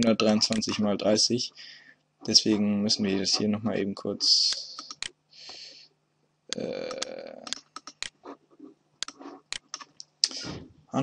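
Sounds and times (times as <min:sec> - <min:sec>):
mouse and keyboard clicks: 0:00.4 - 0:00.8, 0:04.5 - 0:05.2, 0:06.9 - 0:08.3, 0:09.0 - 0:10.1.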